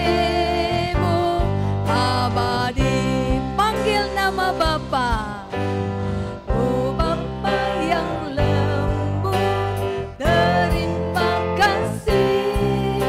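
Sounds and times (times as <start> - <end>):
acoustic guitar: 0.0 - 13.0
electric bass: 0.0 - 13.0
keyboard: 0.0 - 13.0
voices singing together: 6.6 - 13.0.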